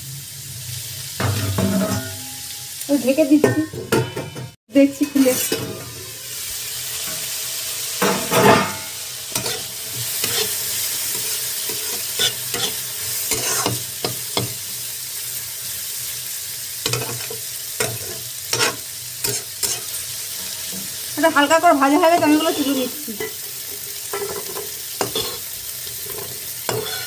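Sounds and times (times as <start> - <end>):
vegetables sizzling in oil: 0.0 - 27.0
metal spatula scraping pan: 3.4 - 6.2, 8.0 - 14.6, 16.8 - 20.9, 24.1 - 27.0.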